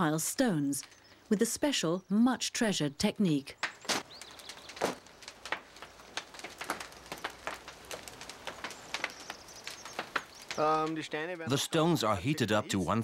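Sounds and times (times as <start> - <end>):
stones clicking and knocking: 3.6 - 11.1.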